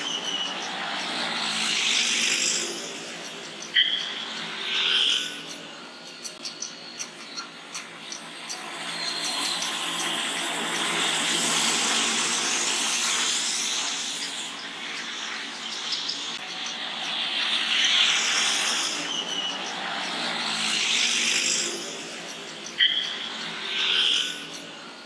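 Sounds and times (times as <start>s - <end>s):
tyres swishing on wet road: 8.6s - 23.7s.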